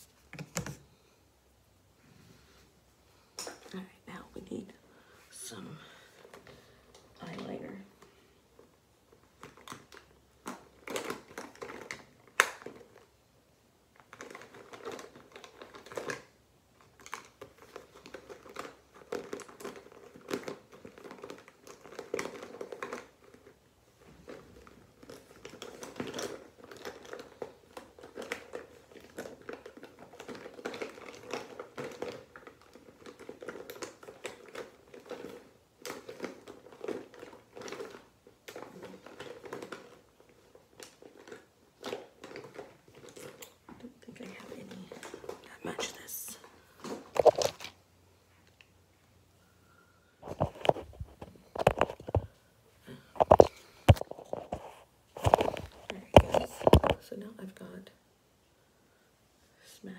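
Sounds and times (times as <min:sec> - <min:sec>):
cosmetics clicking and knocking: 0:00.2 - 0:00.9, 0:08.0 - 0:13.1, 0:24.2 - 0:47.8, 0:50.2 - 0:52.4, 0:53.0 - 0:57.0
plastic bag crinkling: 0:05.6 - 0:13.2, 0:13.9 - 0:48.7, 0:50.2 - 0:57.7.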